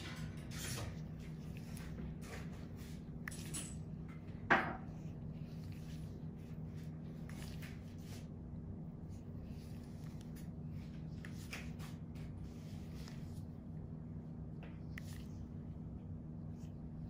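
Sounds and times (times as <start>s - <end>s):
handling rustles and clicks: 0.0s - 8.4s.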